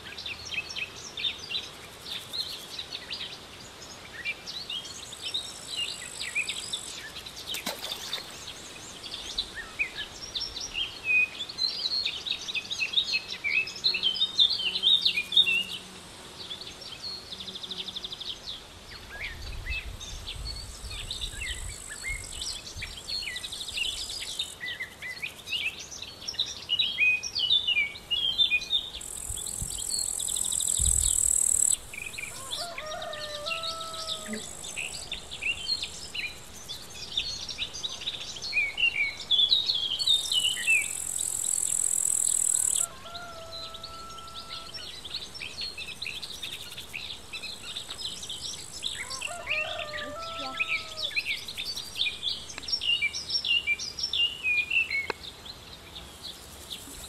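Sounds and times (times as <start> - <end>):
small birds chirping and trilling: 0.3 - 57.0
high insect-like buzz: 13.9 - 18.3, 29.0 - 42.9, 44.0 - 49.3.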